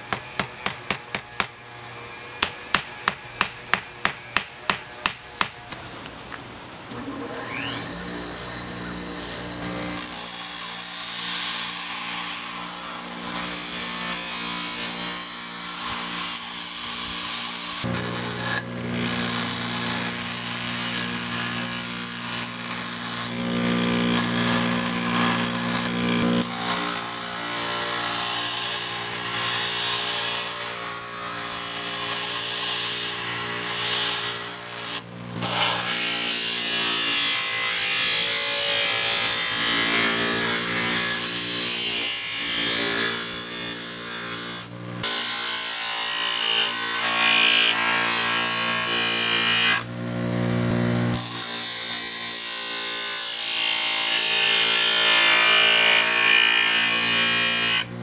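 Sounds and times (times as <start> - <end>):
bench grinder motor hum: 7.2 - 10.8.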